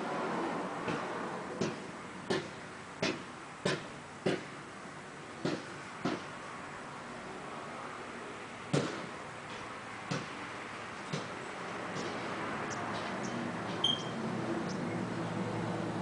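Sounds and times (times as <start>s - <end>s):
outdoor background noise: 0.0s - 16.0s
short high chirp: 13.8s - 14.2s.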